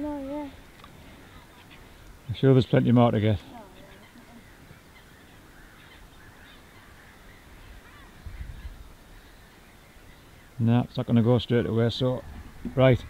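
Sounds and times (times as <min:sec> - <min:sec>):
distant waterfowl calls: 0:03.2 - 0:10.6.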